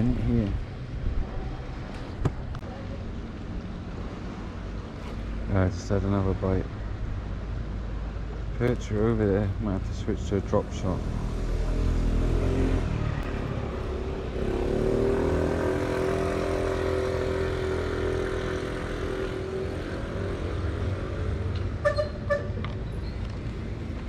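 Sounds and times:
low traffic rumble: 0.0 - 24.0
vehicle engine passing by: 10.9 - 21.7.

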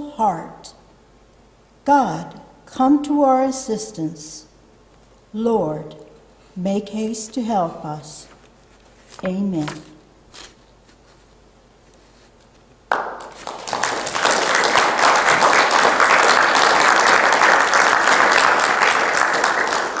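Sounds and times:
audience applauding: 12.9 - 20.0.

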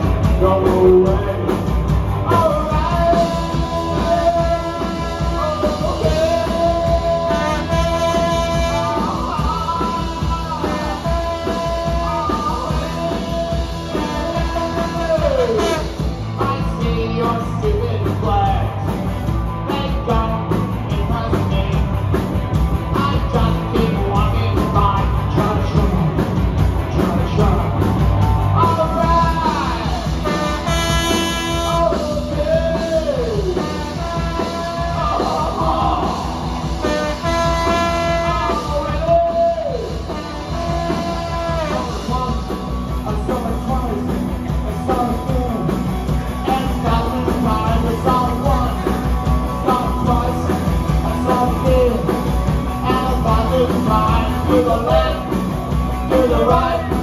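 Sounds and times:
punk rock band playing live: 0.0 - 57.0
person singing: 2.2 - 18.9, 28.5 - 45.8, 49.6 - 52.2, 52.8 - 55.4, 56.0 - 57.0.

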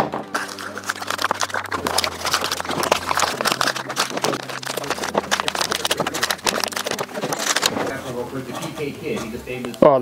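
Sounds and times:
plastic bags crinkling: 0.2 - 8.5.

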